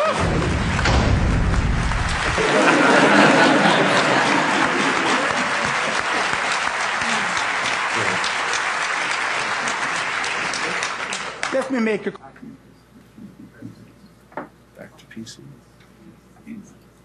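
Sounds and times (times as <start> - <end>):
audience applauding: 0.0 - 11.9.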